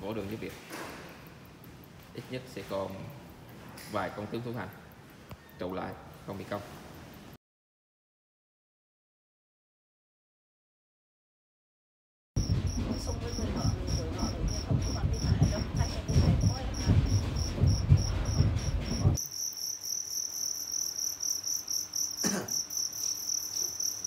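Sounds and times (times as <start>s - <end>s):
low rumble: 12.4s - 19.2s
crickets chirping: 12.4s - 24.0s.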